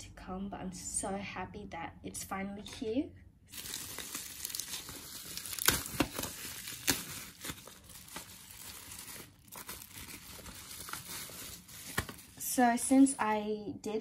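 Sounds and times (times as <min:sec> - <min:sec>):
sharp bubble wrap crackles: 0:03.5 - 0:12.5
bubble wrap crinkling: 0:03.5 - 0:12.6.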